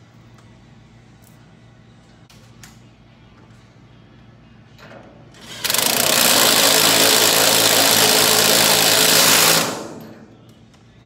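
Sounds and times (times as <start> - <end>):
impact wrench hammering: 5.4 - 10.3.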